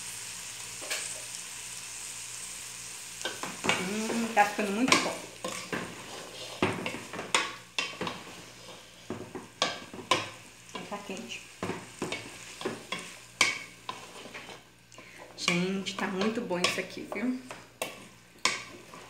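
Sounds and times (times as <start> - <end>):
faint sizzling: 0.0 - 19.0
wooden spoon scraping metal pot: 3.3 - 11.0, 11.6 - 19.0.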